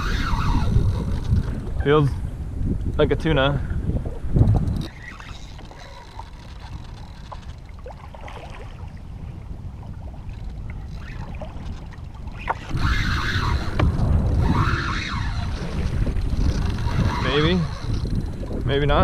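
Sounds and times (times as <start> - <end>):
wind buffeting microphone: 0.0 - 19.0
water washing around kayak: 4.2 - 18.5.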